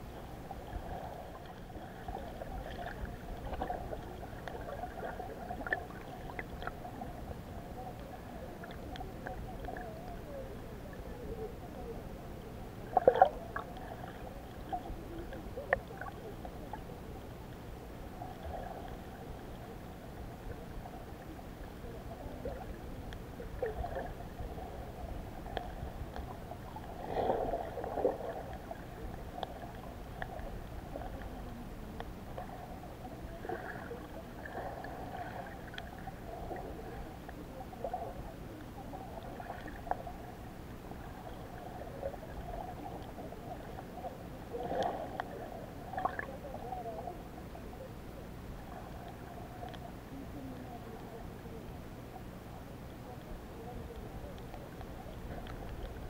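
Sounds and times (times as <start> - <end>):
underwater water rushing: 0.0 - 11.0, 11.6 - 46.7
gurgling splashes: 0.5 - 7.2, 12.8 - 17.0, 22.0 - 31.4, 41.0 - 46.4.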